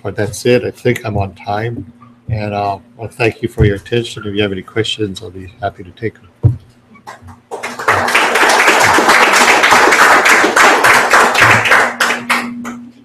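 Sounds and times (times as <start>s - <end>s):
audience applause: 7.5s - 12.6s.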